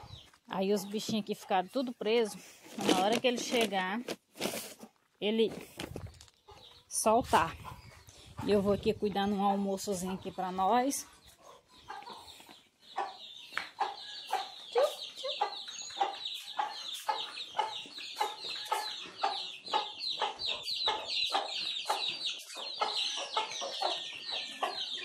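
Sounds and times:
chicks peeping: 0:00.0 - 0:02.3, 0:06.3 - 0:25.0
hen clucking: 0:06.3 - 0:25.0.

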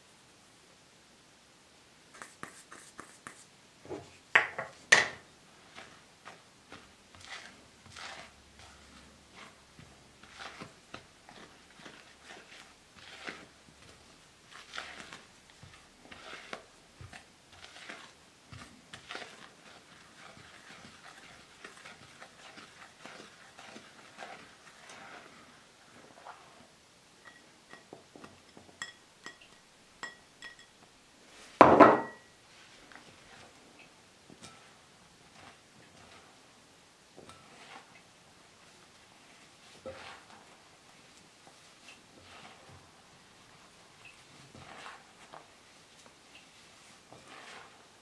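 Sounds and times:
spatula scraping glass bowl: 0:05.6 - 0:30.7, 0:34.4 - 0:36.4, 0:37.2 - 0:38.0, 0:39.6 - 0:40.6, 0:41.5 - 0:42.8, 0:43.4 - 0:45.5, 0:46.8 - 0:48.0.

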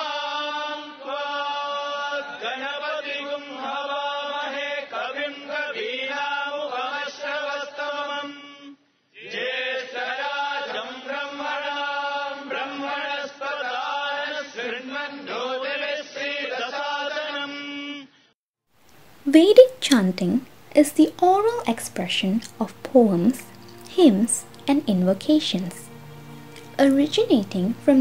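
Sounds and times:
person chanting: 0:19.3 - 0:28.0.

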